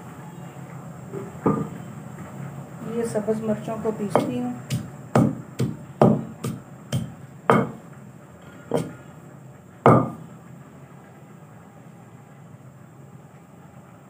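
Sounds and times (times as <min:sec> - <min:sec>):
pestle pounding in stone mortar: 0:04.1 - 0:07.8, 0:08.7 - 0:09.0, 0:09.9 - 0:10.2.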